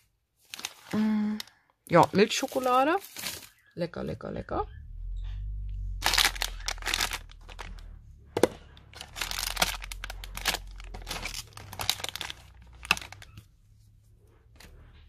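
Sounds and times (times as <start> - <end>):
plastic packets crinkling: 0.0 - 3.7, 6.0 - 13.5
low rumble: 4.5 - 13.3.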